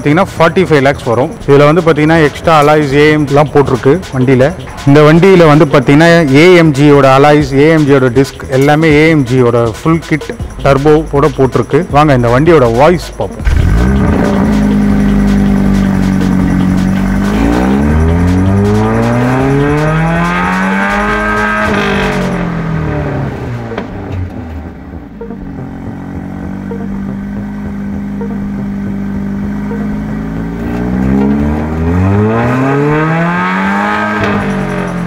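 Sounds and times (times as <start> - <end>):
car engine idling and revving: 0.0 - 35.0.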